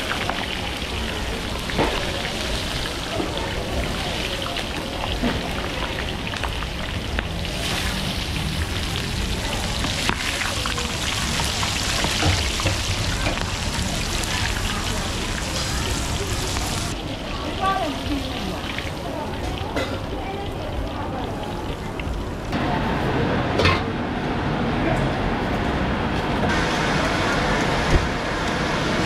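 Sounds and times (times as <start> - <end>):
seafood sizzling and crackling: 0.0 - 22.2.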